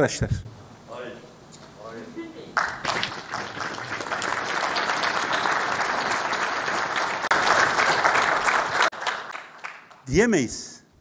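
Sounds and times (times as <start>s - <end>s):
audience applauding: 2.6s - 10.1s.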